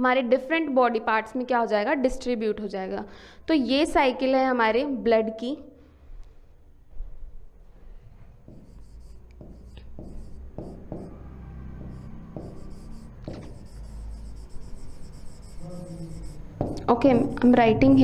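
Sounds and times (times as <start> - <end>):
pen scratching on board: 8.5 - 11.1, 11.9 - 18.0.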